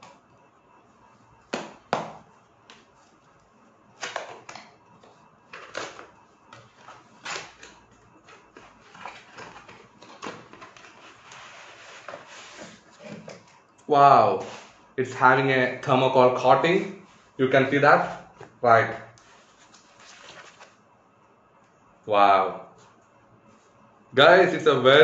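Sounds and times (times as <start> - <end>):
cardboard scraping and rustling: 5.6 - 13.4, 19.2 - 20.7.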